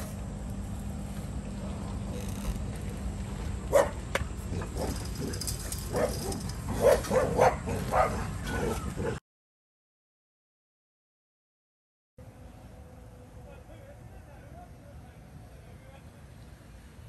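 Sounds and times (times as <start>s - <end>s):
low background hum: 0.0s - 9.2s, 12.2s - 17.0s
dog barking: 3.7s - 4.0s, 5.9s - 8.8s.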